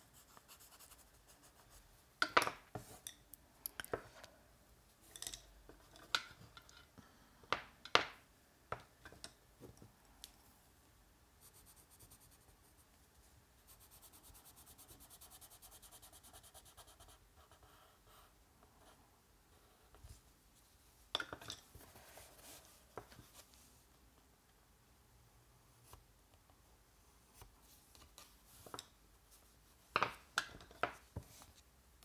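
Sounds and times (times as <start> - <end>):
pencil scratching on paper: 0.0 - 1.8, 13.7 - 19.0.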